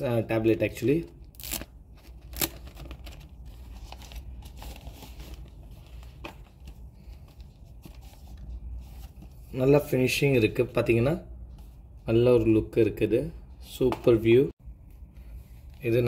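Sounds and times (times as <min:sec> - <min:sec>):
paper and cardboard rustling: 0:01.4 - 0:09.6.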